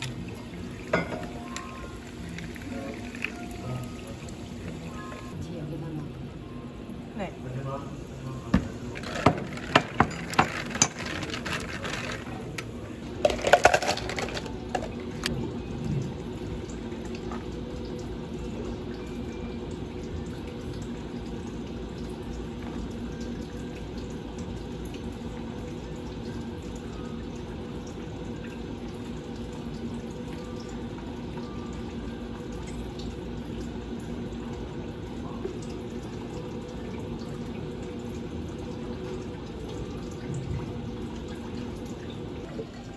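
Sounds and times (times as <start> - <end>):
liquid poured over ice: 0.0 - 5.4, 8.6 - 15.3
steady background hum: 0.0 - 42.9
ice clinking in a glass: 0.9 - 3.9, 9.0 - 12.4, 13.2 - 15.0.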